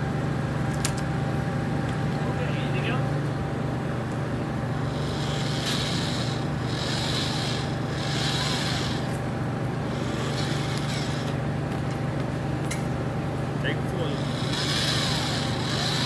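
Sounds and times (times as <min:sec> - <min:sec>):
engine idling: 0:04.0 - 0:16.0.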